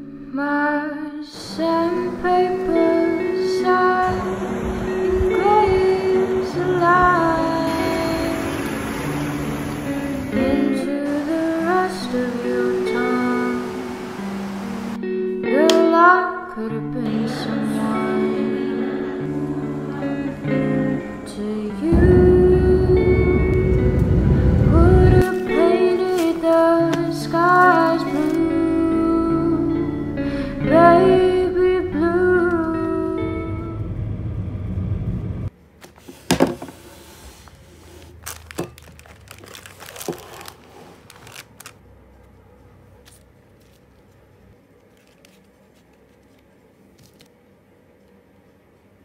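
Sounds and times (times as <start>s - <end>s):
gentle guitar music: 0.0s - 35.5s
plastic packaging crinkling: 25.2s - 28.4s, 37.8s - 42.3s, 42.9s - 47.3s.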